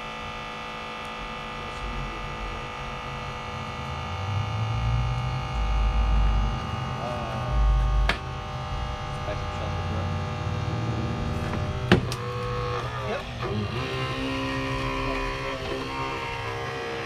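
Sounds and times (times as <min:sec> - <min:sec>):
motor running: 0:00.0 - 0:17.0
deep uneven rumble: 0:04.4 - 0:13.6.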